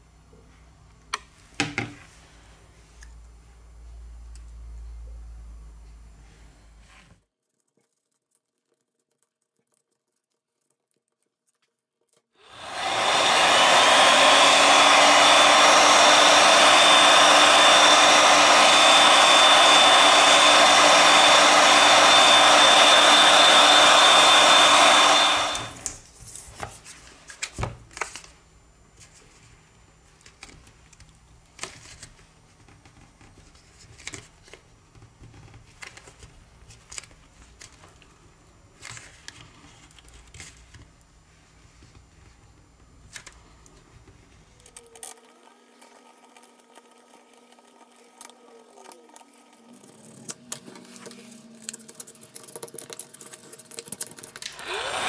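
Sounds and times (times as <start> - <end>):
faint clicks and scrapes: 6.7 - 12.4, 38.8 - 54.5
heat gun blowing with fan whine: 12.4 - 26.0, 54.4 - 55.0.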